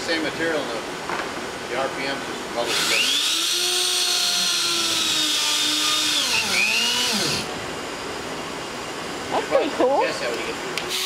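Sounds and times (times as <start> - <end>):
spin-welding tool whining: 2.7 - 7.5, 10.8 - 11.0.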